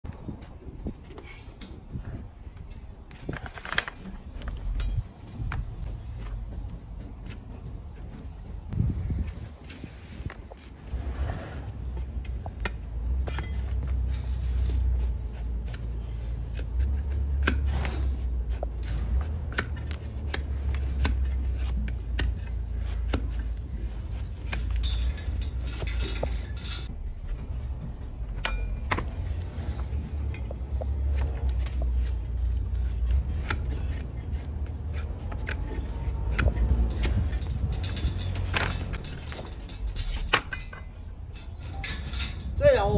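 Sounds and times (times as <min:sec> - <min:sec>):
low rumble: 0:04.1 - 0:42.9
blade cutting hoof: 0:09.3 - 0:26.6, 0:28.4 - 0:40.6.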